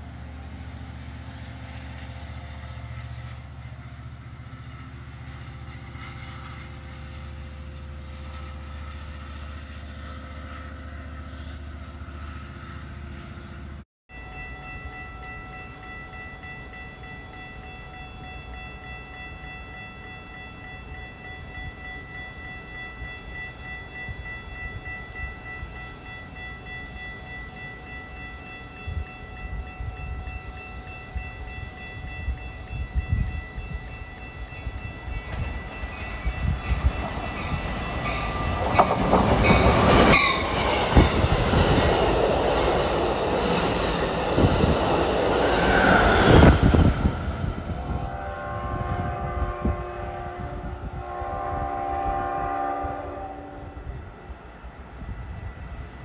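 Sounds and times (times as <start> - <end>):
train passing at speed: 0.0 - 56.0
train horn blasts: 46.3 - 54.2.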